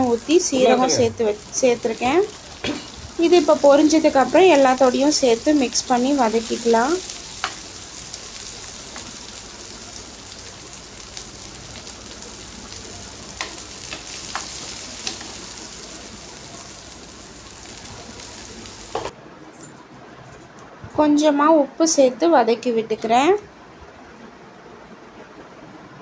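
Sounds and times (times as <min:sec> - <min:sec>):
food sizzling in oil: 0:00.0 - 0:19.1.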